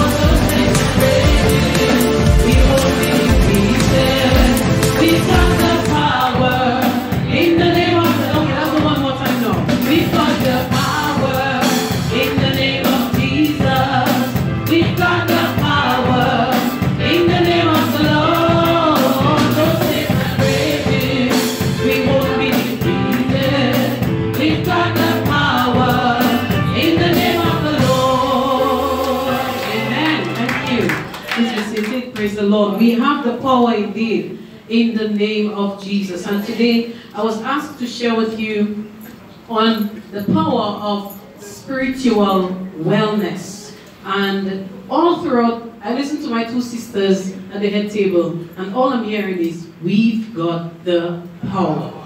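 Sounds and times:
song with singing over a beat: 0:00.0 - 0:31.1.

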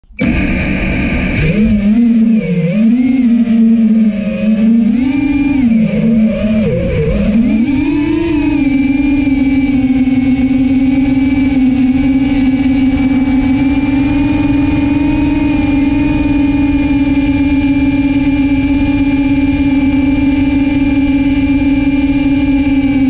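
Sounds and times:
quadcopter propellers humming: 0:00.0 - 0:23.0.

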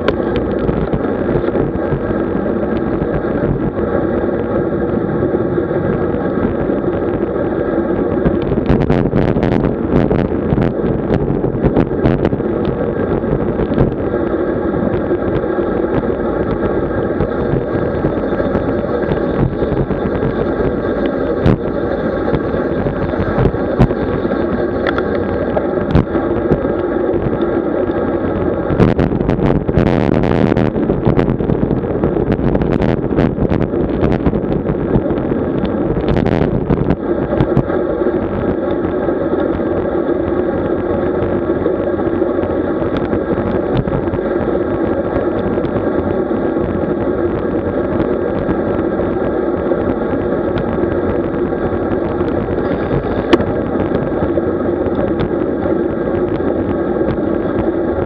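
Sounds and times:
road and wind noise: 0:00.0 - 0:58.0
hissing rush: 0:16.6 - 0:27.0, 0:52.5 - 0:53.7.

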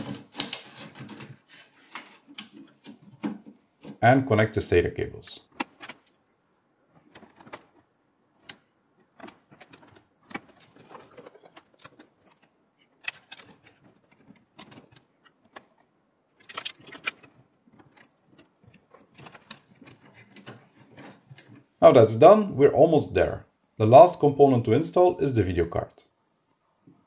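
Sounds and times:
cable rustling: 0:00.0 - 0:04.0, 0:05.4 - 0:21.8
faint clicks and taps: 0:00.0 - 0:04.0, 0:06.9 - 0:21.7.

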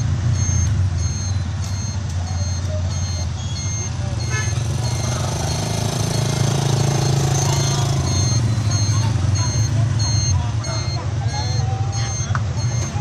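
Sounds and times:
engine idling: 0:00.0 - 0:13.0
short high electronic beeps: 0:00.3 - 0:13.0.

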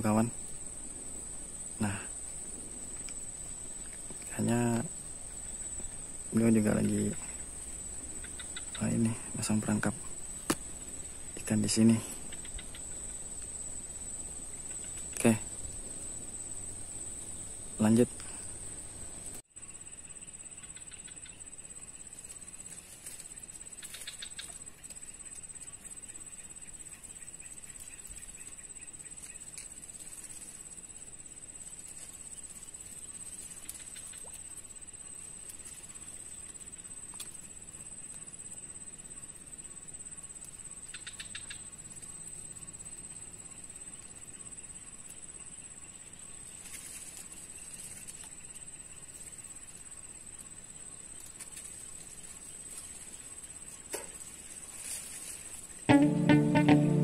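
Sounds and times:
high-pitched insect drone: 0:00.0 - 0:18.8, 0:55.9 - 0:57.0
short pulsing trills: 0:55.9 - 0:57.0.

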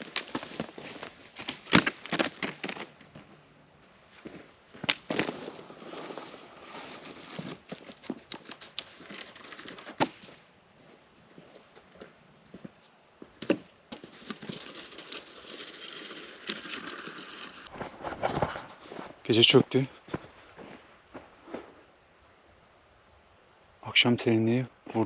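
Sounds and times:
twigs cracking: 0:00.0 - 0:03.2, 0:04.2 - 0:10.4
twigs and leaves rustling: 0:00.0 - 0:19.2.

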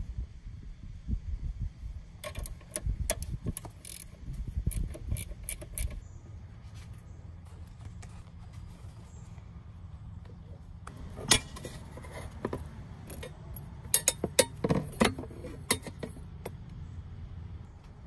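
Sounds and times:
plastic and metal parts clicking: 0:02.2 - 0:06.0.

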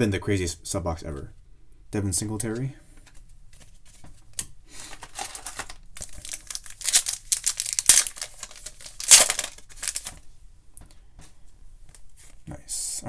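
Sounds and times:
foil wrapper tearing and crinkling: 0:04.8 - 0:10.2.

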